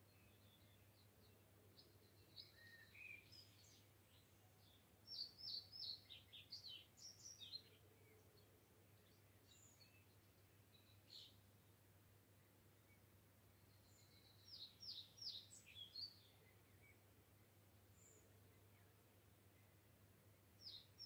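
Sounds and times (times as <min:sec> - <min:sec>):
faint bird song: 0:00.0 - 0:21.0.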